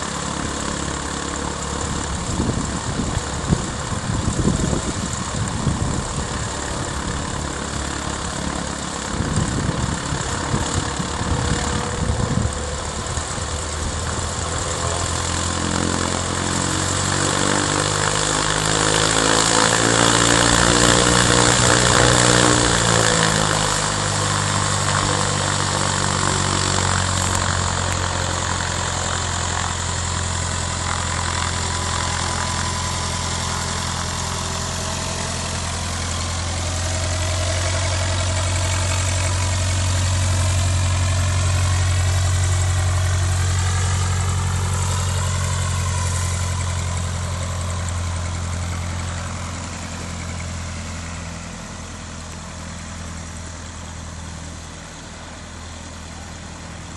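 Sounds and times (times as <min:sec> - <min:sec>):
propeller plane engine: 0:00.0 - 0:56.9.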